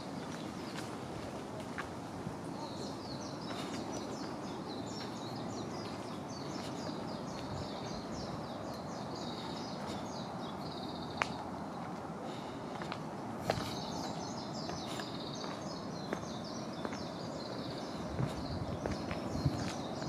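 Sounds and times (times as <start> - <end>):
songbird singing: 0.0 - 20.0
steady outdoor noise: 0.0 - 20.0.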